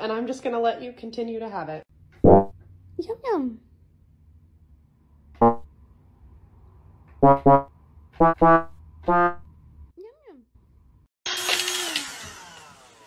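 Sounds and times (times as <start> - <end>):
electronic keyboard notes: 5.4 - 5.6, 7.2 - 9.4.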